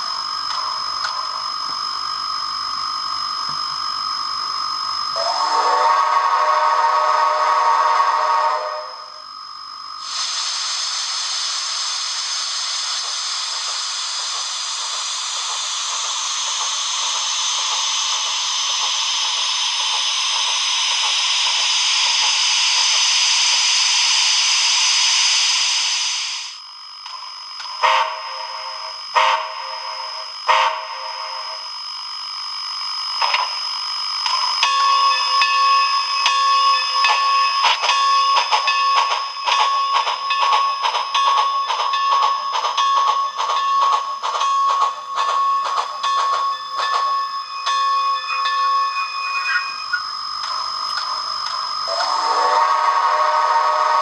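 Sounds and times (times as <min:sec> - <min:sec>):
model train steam whistle: 0:05.1 - 0:09.2, 0:27.8 - 0:31.6, 0:51.8 - 0:54.0
steady steam hiss: 0:10.0 - 0:26.5
pitched electronic tone: 0:46.8 - 0:54.0.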